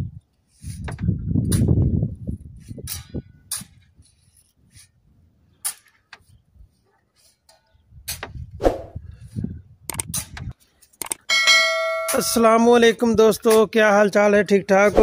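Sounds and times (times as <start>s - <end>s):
tool scraping into sand: 2.6s - 5.0s.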